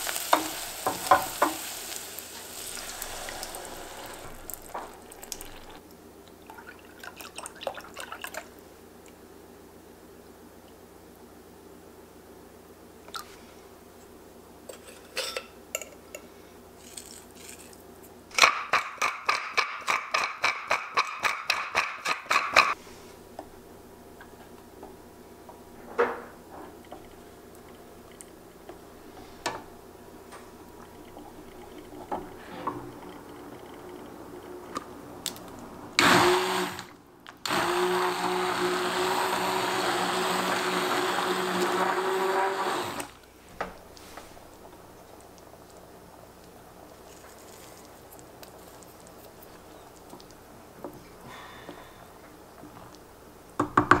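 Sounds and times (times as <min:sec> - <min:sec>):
immersion blender running: 0:36.0 - 0:36.9, 0:37.5 - 0:43.2.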